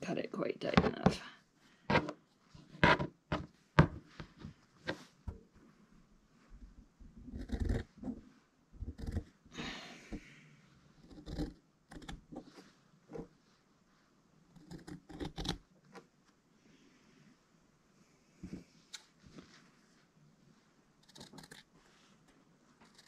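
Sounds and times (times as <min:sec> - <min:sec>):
scissors trimming fabric: 0:14.6 - 0:15.6
fabric rustling: 0:18.4 - 0:20.8.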